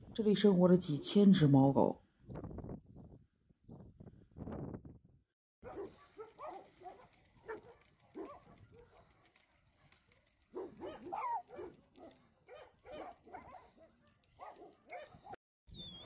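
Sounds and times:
dogs barking and yipping: 0:05.6 - 0:15.4.

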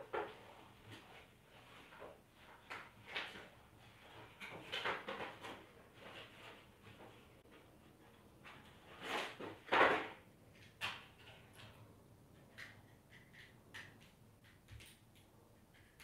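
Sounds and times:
rustling and scraping: 0:00.0 - 0:10.2.

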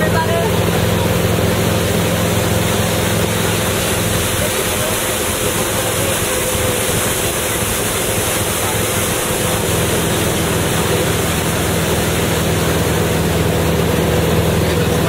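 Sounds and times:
boat engine running: 0:00.0 - 0:15.0
rushing wake and spray: 0:00.0 - 0:15.0.

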